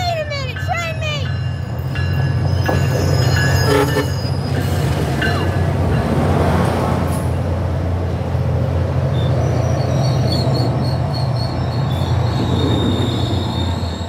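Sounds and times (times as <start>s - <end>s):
diesel locomotive drone: 0.0s - 14.0s
train coaches rolling past: 0.0s - 14.0s
high wheel squeal: 2.2s - 5.0s, 9.1s - 14.0s.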